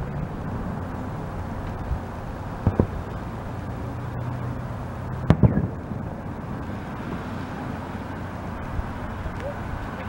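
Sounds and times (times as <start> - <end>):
small firework pops: 2.6 - 3.0, 5.2 - 5.7
firework bang: 2.6 - 3.2, 5.2 - 6.2.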